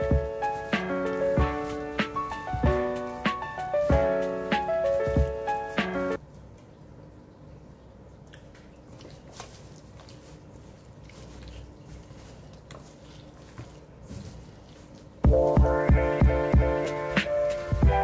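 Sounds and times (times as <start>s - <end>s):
hands squishing wet chicken: 8.2s - 15.2s.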